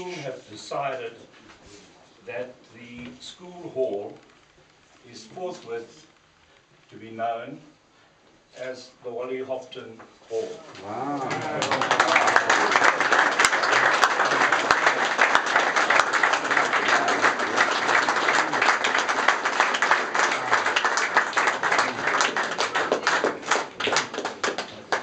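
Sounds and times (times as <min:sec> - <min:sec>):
crowd applauding: 0:10.8 - 0:25.0.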